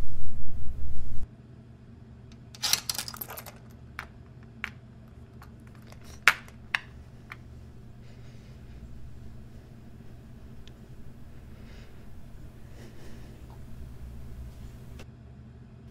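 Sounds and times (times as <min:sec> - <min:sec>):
small clicks and rustles: 0:02.6 - 0:15.0.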